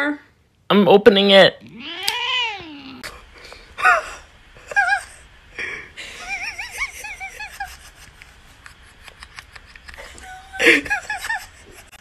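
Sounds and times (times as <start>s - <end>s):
person laughing with wheezy breaths: 3.1s - 12.0s.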